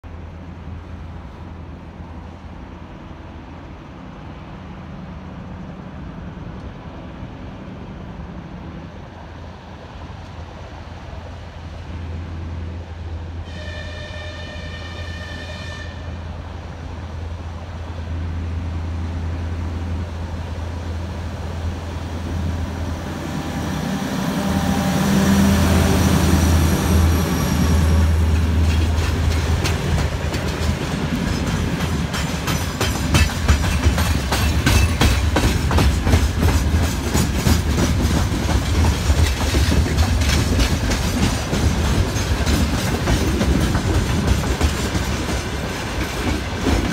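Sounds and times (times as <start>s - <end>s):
diesel locomotive engine drone: 0.0s - 46.9s
locomotive horn blast: 13.4s - 16.3s
train wheels clacking over rail joints: 27.8s - 46.9s.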